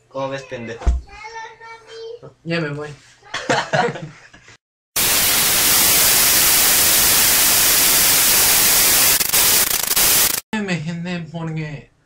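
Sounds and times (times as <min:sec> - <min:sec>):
static hiss: 0:05.0 - 0:10.4.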